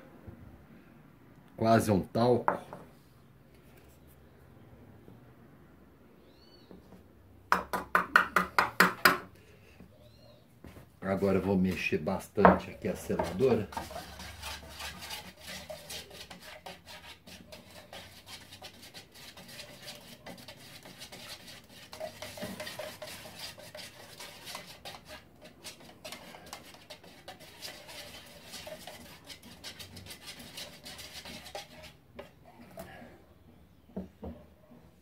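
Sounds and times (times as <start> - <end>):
stick scraping metal can: 12.6 - 32.4.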